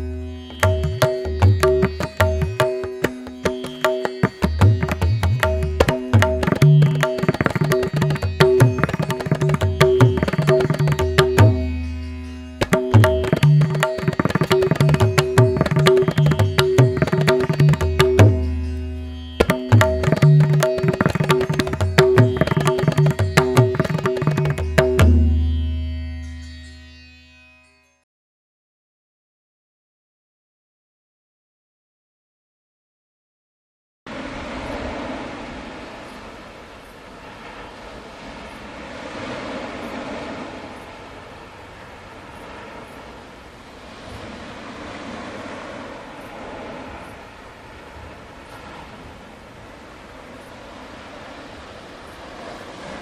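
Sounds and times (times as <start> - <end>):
tabla drumming: 0.5 - 26.2.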